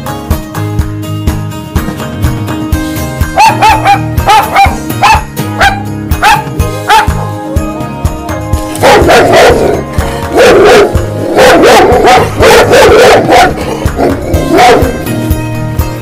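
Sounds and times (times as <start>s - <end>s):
music with a steady beat: 0.0s - 16.0s
dogs barking: 3.3s - 7.2s, 8.8s - 15.1s.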